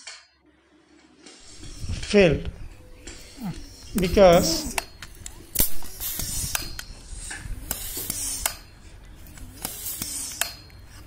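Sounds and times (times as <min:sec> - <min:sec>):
hand pump air rush: 0:03.1 - 0:11.0.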